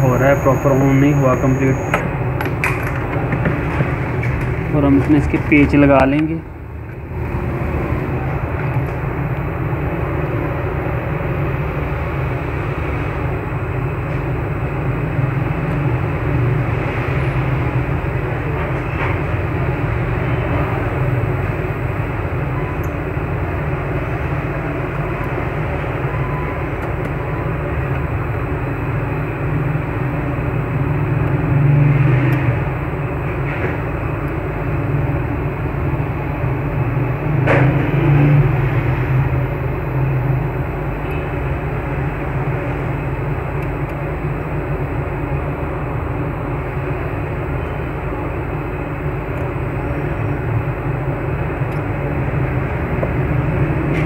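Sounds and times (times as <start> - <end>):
steady background rumble: 32.4 - 54.0.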